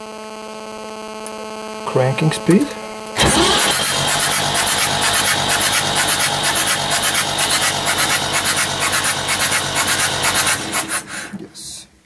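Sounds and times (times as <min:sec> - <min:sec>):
diesel engine cranking on starter: 0:03.2 - 0:11.3.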